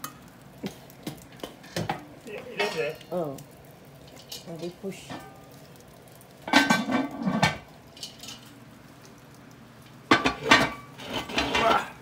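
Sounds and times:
cast iron pot scraping oven floor: 6.5 - 8.5, 10.1 - 12.0.

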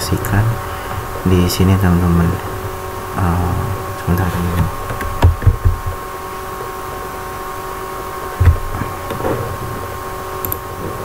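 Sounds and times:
electrical hum and hiss: 0.0 - 11.0
thin steady whine: 0.0 - 11.0
dull low thumps: 4.5 - 6.0, 8.4 - 9.0.

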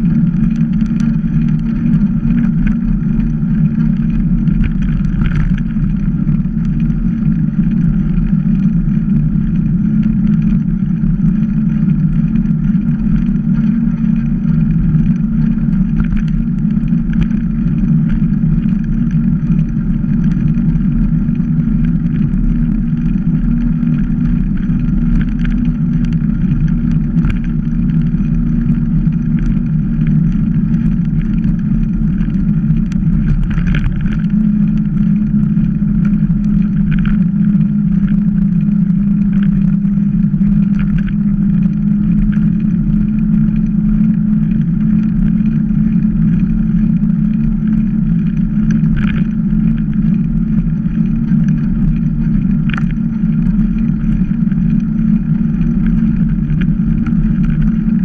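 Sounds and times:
bike tyres on asphalt: 0.0 - 58.0
wind rumble on microphone: 0.0 - 58.0.

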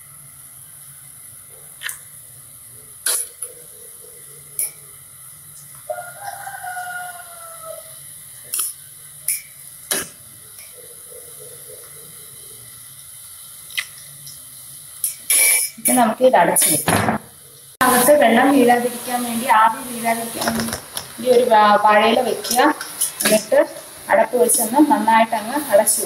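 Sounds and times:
rooster crowing: 5.8 - 8.1.

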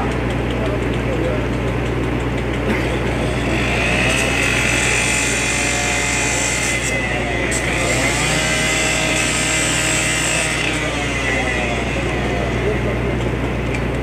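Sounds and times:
cut-off saw engine running: 0.0 - 14.0
disc grinding on metal screech: 3.1 - 12.9.

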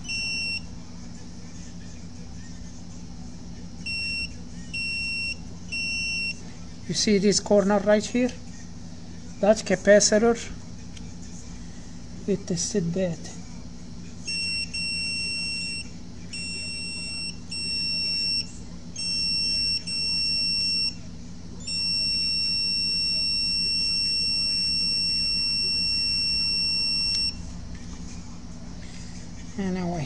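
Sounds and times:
multimeter continuity buzzer beeping: 0.0 - 0.8, 3.8 - 6.4, 14.2 - 27.5
low steady hum: 0.0 - 30.0.

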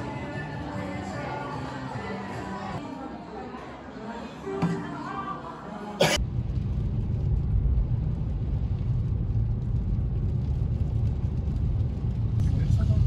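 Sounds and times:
car tyres and engine rumbling: 6.2 - 13.0.

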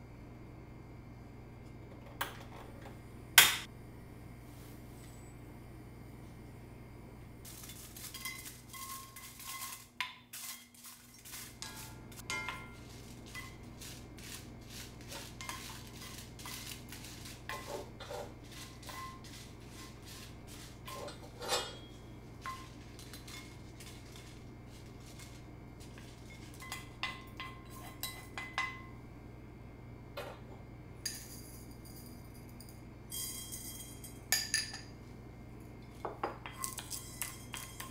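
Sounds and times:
steady low hum: 0.0 - 37.9
chillies stirred in a skillet: 7.4 - 28.6, 36.4 - 37.9.

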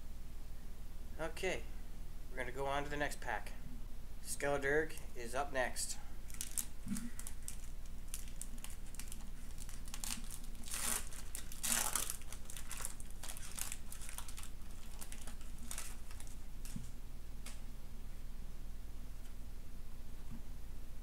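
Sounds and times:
foil wrapper crinkling: 6.2 - 17.0.

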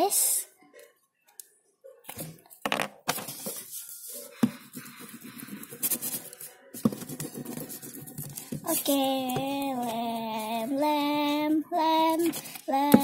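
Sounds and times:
paper rustling: 3.1 - 4.4, 12.1 - 13.0.

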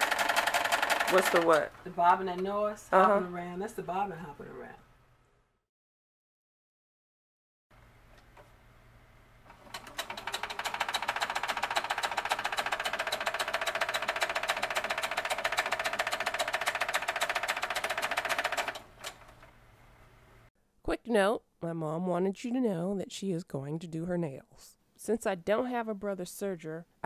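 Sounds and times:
sewing machine stitching: 0.0 - 1.7, 9.5 - 19.5.

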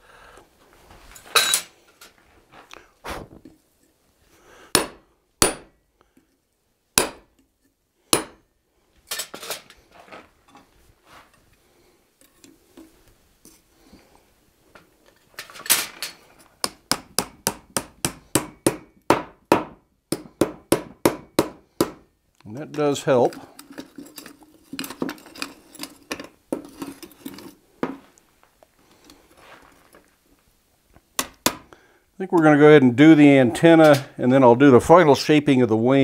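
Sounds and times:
hammer striking metal punch: 4.7 - 5.7, 7.0 - 7.3, 8.1 - 8.4, 16.6 - 22.0.

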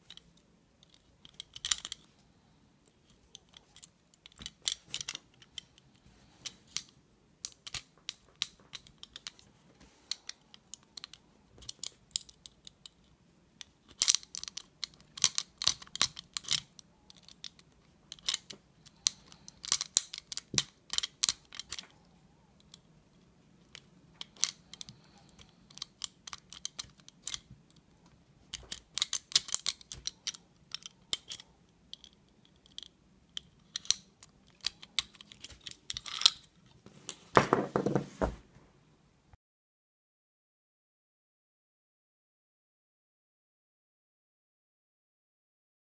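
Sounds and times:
lock pick clicking and scratching: 0.0 - 2.1, 10.1 - 21.9, 23.6 - 27.8, 28.5 - 36.8.

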